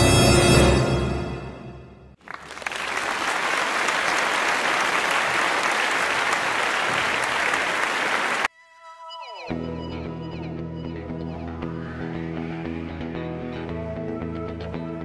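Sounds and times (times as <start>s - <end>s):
crowd applause: 2.2s - 8.5s.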